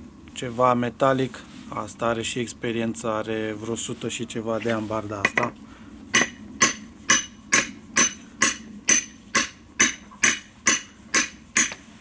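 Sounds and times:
metal clanks on stump vise: 0:05.2 - 0:05.6.

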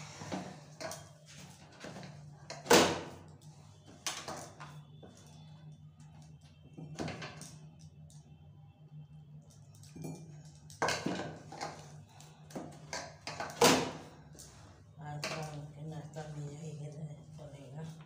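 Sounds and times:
low steady hum: 0:00.0 - 0:18.0
bangles and plate clinking: 0:09.6 - 0:11.7.

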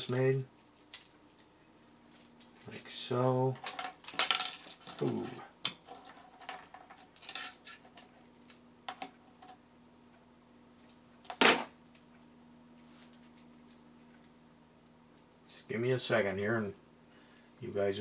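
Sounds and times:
plastic parts clicking and clattering: 0:03.6 - 0:09.1.

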